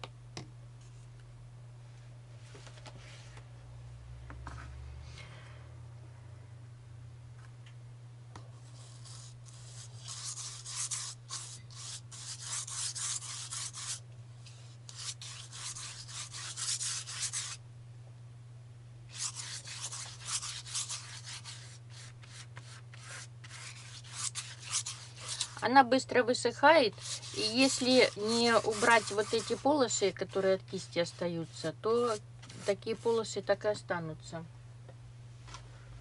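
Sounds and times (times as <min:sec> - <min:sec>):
steady low hum: 0:00.0 - 0:36.0
brush scrubbing on paper: 0:08.6 - 0:17.6, 0:19.1 - 0:25.6, 0:26.8 - 0:33.3.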